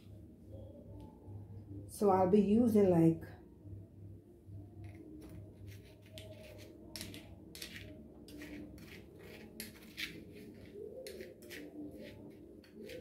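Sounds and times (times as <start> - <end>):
scraping and rustling of sugar: 4.9 - 13.0.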